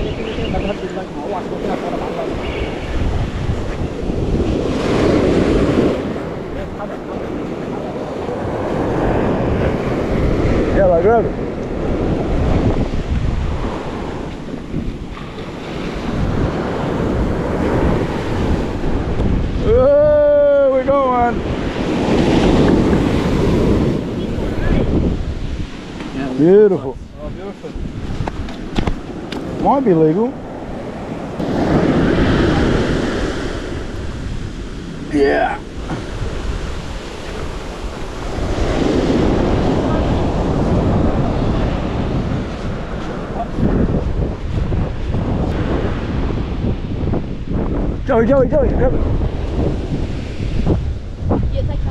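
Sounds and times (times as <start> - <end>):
surf waves washing on sand: 0.0 - 51.9
wind buffeting microphone: 0.0 - 51.9.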